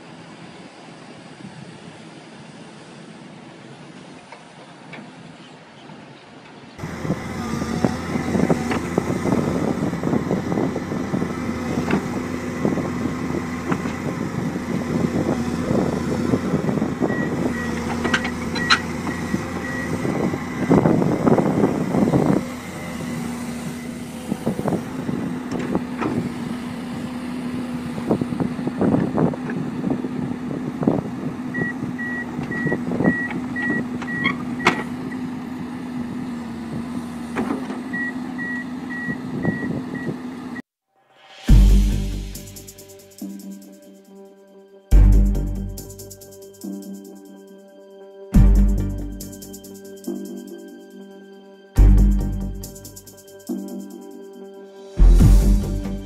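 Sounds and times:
excavator diesel engine running: 6.0 - 40.6, 41.5 - 43.9, 44.9 - 47.5, 48.4 - 51.0, 51.8 - 54.3, 55.0 - 56.0
steel tracks clanking: 6.8 - 26.8
alarm beeping: 16.4 - 24.0, 31.5 - 34.8.

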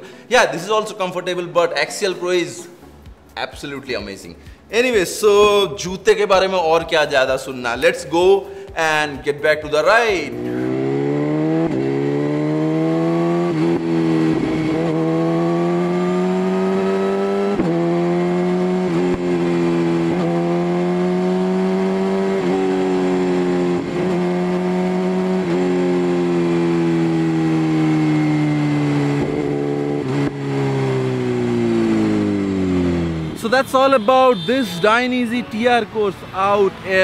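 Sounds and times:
motorcycle engine shifting gears: 10.3 - 33.4.

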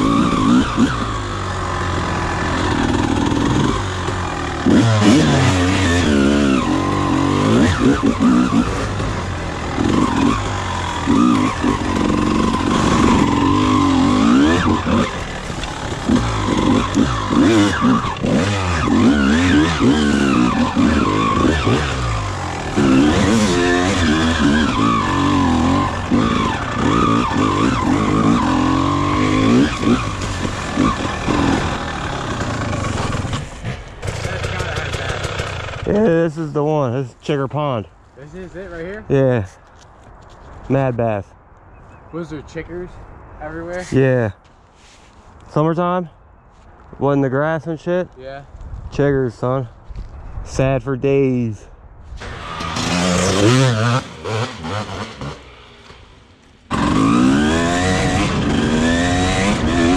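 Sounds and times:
dirt bike engine revving: 0.0 - 36.6, 52.2 - 59.9.

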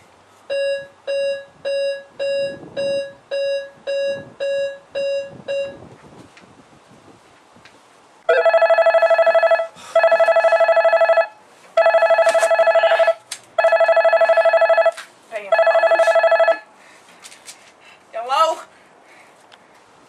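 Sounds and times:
mobile phone ringing: 8.3 - 16.7.

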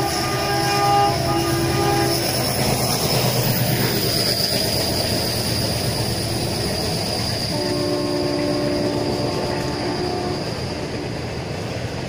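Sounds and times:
locomotive horn: 0.0 - 3.0, 7.5 - 11.4
moving train rumble and rail noise: 0.0 - 12.0.

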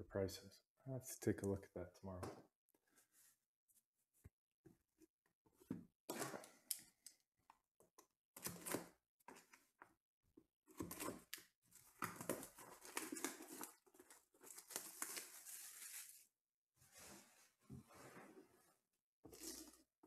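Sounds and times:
plastic wrap crinkling and tearing: 11.8 - 16.3
knife slitting plastic wrap: 14.5 - 16.2.

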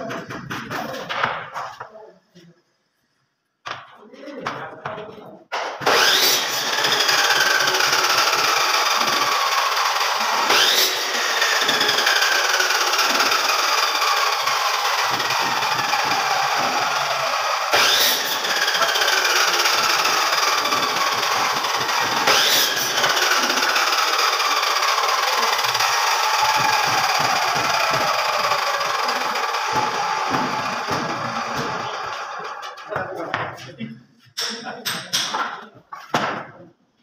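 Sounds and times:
machine motor whining: 5.8 - 32.7.

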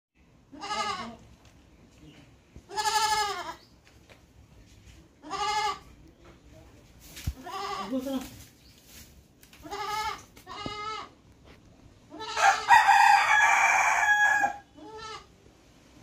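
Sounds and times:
goat bleating: 0.5 - 1.3, 2.7 - 3.6, 5.2 - 6.0, 7.4 - 8.3, 9.6 - 11.2, 12.1 - 12.7, 14.8 - 15.3.

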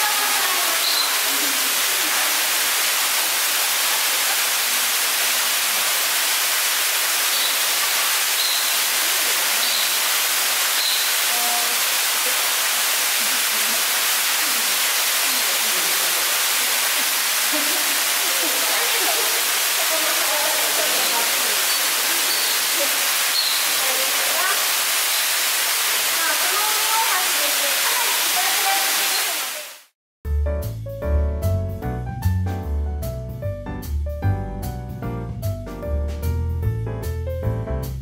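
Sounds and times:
falling water rushing: 0.0 - 30.0
faint high chirps: 0.8 - 1.3, 8.4 - 8.9, 9.6 - 10.1, 10.8 - 11.2, 21.6 - 23.9.

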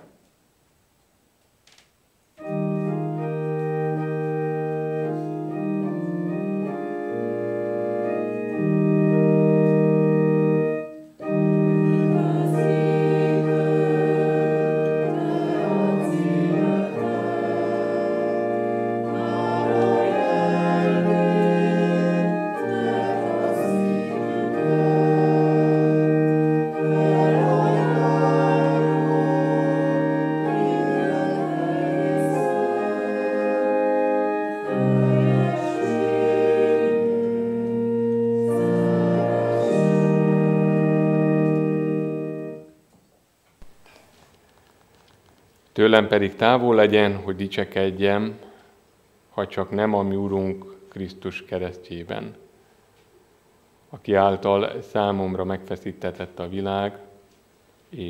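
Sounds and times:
congregation singing a hymn: 2.4 - 42.7
organ playing hymn chords: 2.4 - 42.9.

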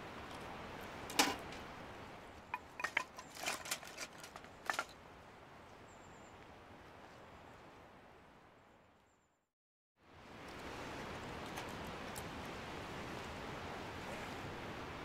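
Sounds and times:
firewood knocking and clacking: 2.5 - 4.9.

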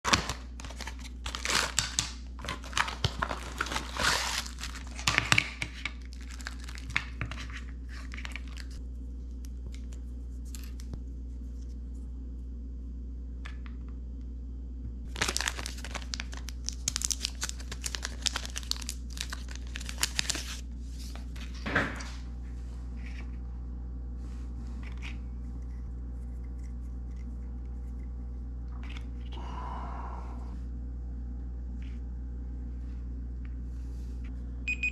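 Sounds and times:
wrappers crinkling and tearing: 0.0 - 5.4, 6.0 - 8.8, 15.1 - 20.6
steady low hum: 0.1 - 34.9.

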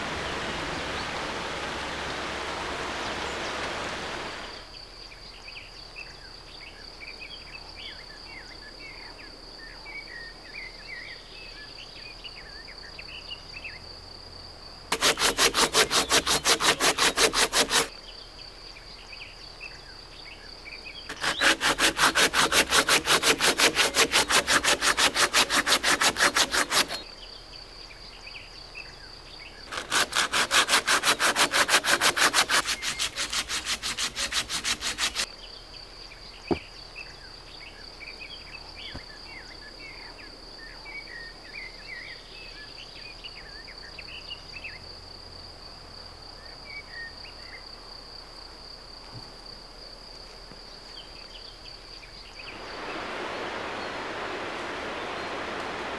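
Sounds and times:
high insect trill: 12.7 - 39.5
pruning saw cutting log: 14.9 - 17.9, 21.1 - 27.0, 29.7 - 35.3.

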